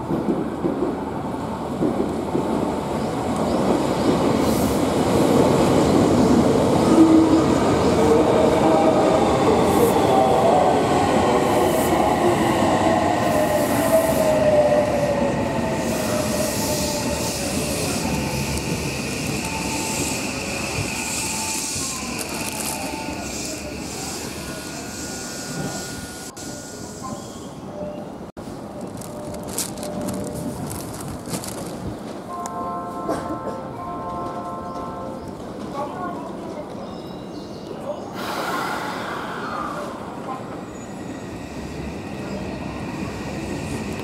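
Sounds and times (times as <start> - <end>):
train wheels rumbling over rails: 0.0 - 26.3.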